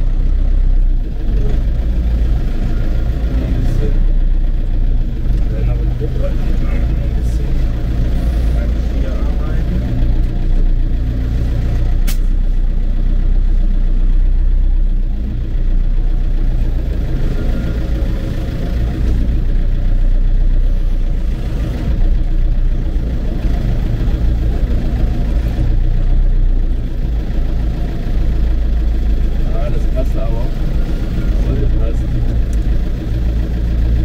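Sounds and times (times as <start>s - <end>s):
tractor diesel engine running: 0.0s - 34.0s
sharp click: 12.0s - 12.3s.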